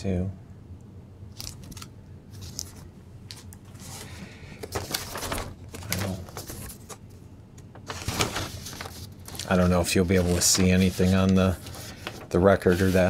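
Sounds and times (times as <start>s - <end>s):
plastic sleeve crinkling: 1.4s - 7.0s, 7.7s - 13.0s
record sliding from paper sleeve: 10.2s - 13.0s.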